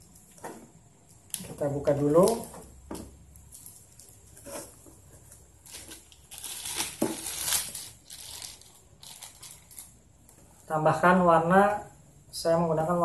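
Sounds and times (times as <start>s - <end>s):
plastic bag crinkling: 1.1s - 10.3s.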